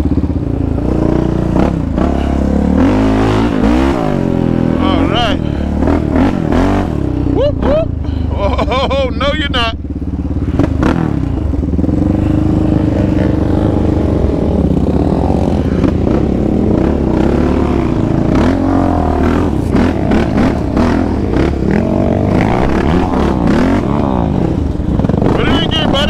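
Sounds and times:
quad bike engine revving: 0.0s - 26.0s.

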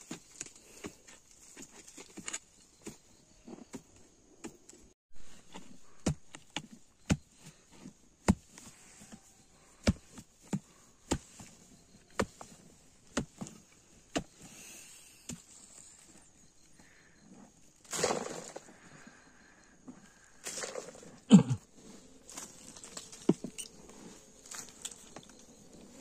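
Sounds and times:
metal blade chopping dry soil: 17.9s - 18.7s.

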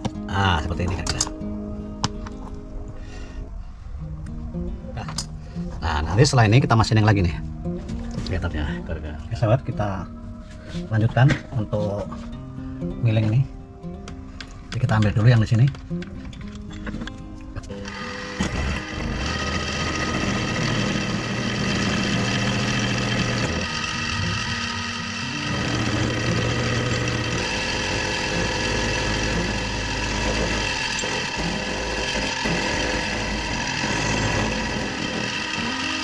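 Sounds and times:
end mill cutting metal whine: 17.7s - 36.0s
milling machine motor hum: 17.7s - 36.0s.

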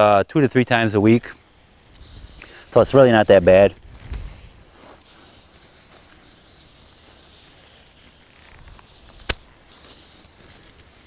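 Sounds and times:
pressure sprayer hissing: 1.3s - 11.0s
sharp click: 8.6s - 9.5s.

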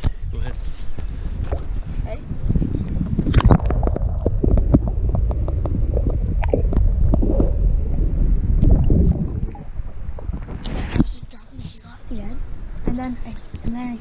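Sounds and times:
underwater rumble and sloshing: 0.8s - 14.0s.

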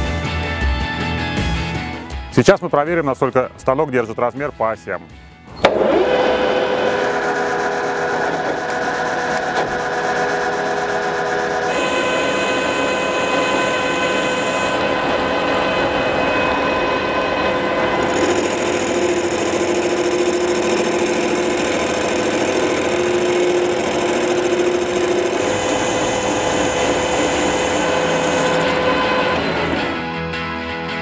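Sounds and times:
metal lathe gear whine: 5.6s - 30.0s
tool cutting metal bar: 5.6s - 30.0s.

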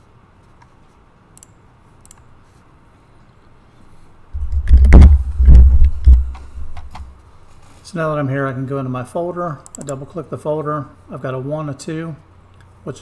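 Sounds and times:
keyboard and mouse clicks: 1.4s - 2.3s, 9.6s - 10.0s
low thumping: 4.4s - 7.1s.

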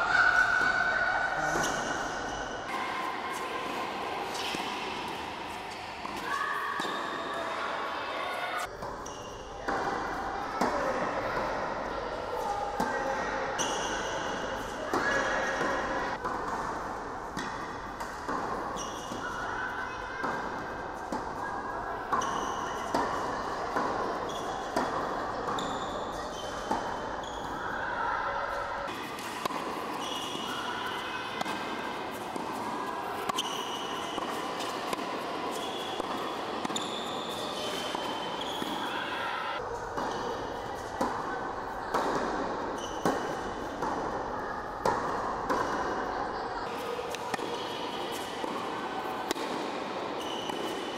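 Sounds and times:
racket hitting tennis ball: 3.3s - 7.4s, 13.8s - 19.4s, 20.2s - 21.4s, 22.0s - 27.6s, 28.9s - 39.2s, 39.9s - 46.0s, 46.8s - 50.9s
sneakers squeaking on court: 18.3s - 19.4s, 24.1s - 27.7s, 28.9s - 32.5s, 33.1s - 39.1s, 42.7s - 43.8s, 50.1s - 50.9s.

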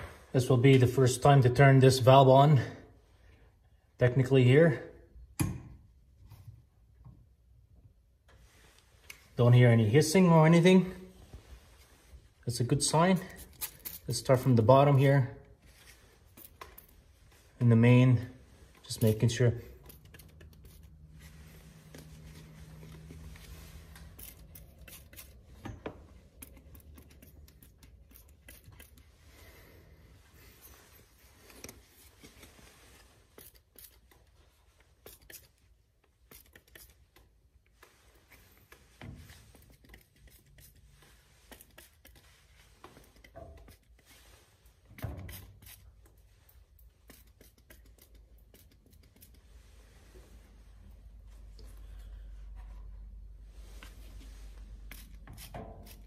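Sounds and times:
spray bottle spritzing: 23.6s - 25.6s, 26.4s - 29.1s, 33.3s - 34.2s, 34.9s - 37.2s, 39.5s - 46.2s, 46.8s - 49.4s, 54.8s - 56.0s.

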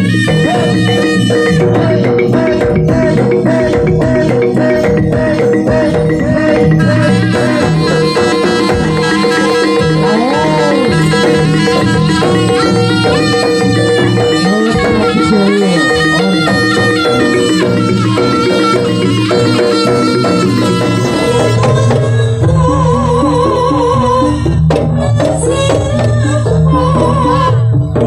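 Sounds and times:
reedy shawm melody: 0.0s - 24.2s
drums: 0.0s - 28.0s.

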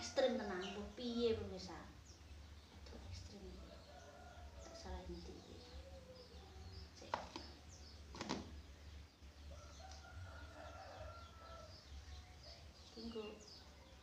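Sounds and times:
small birds chirping: 0.0s - 14.0s
chickens calling: 2.1s - 14.0s
rooster crowing: 9.5s - 11.9s.

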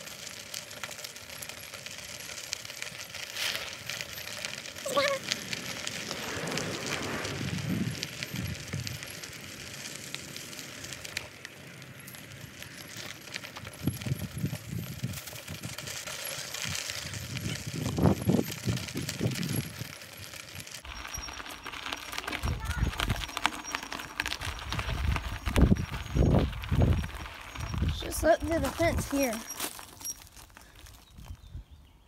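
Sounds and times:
footsteps crunching gravel: 0.0s - 31.5s
microphone wind rumble: 6.1s - 9.0s, 17.1s - 19.8s, 24.4s - 29.1s.

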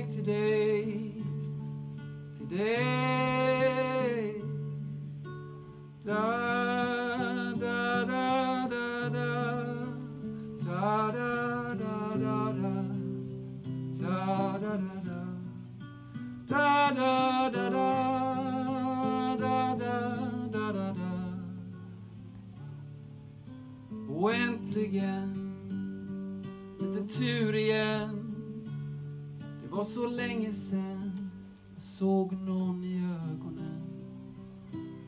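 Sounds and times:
man singing: 0.0s - 1.6s, 2.3s - 4.9s, 6.0s - 15.7s, 16.4s - 21.9s, 24.1s - 25.6s, 26.8s - 28.8s, 29.6s - 34.2s
strummed acoustic guitar: 0.0s - 35.0s.

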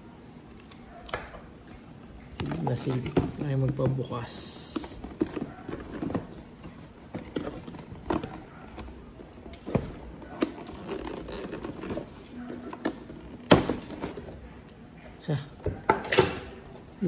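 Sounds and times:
cardboard rubbing: 9.8s - 13.2s.

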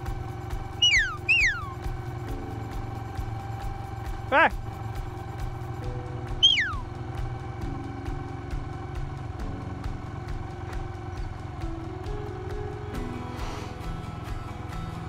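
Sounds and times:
small engine idling: 0.0s - 15.0s
whistle sweeping down: 0.8s - 1.8s, 6.4s - 6.9s.

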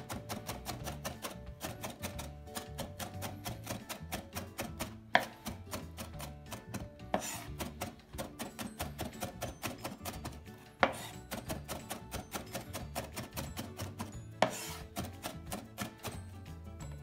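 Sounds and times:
knife chopping on cutting board: 0.0s - 16.2s
louder knife stroke: 7.1s - 7.9s, 10.8s - 11.8s, 14.4s - 15.1s.

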